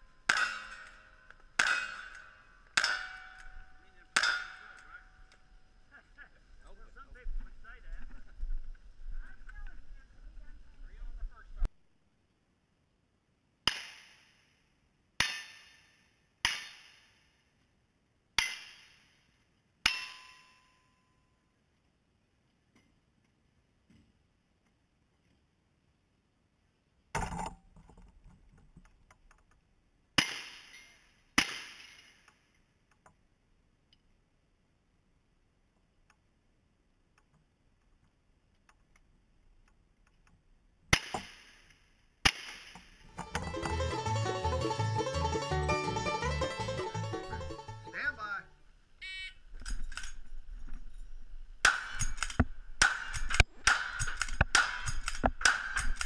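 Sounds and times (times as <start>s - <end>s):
steel targets ringing: 0.2s - 5.4s
shotgun handling clicks: 49.6s - 50.2s, 51.9s - 56.0s
gunshots: 51.6s - 56.0s.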